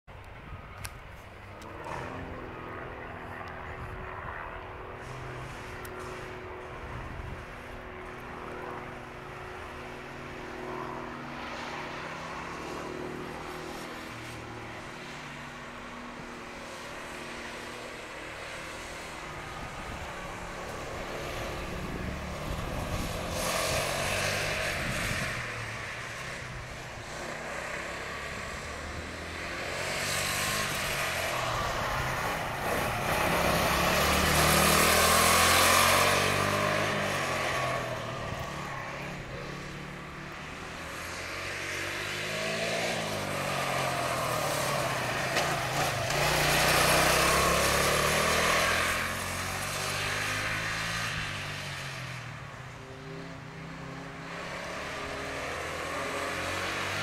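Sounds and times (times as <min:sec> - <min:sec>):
go-kart engines running: 0:00.2 - 0:57.0.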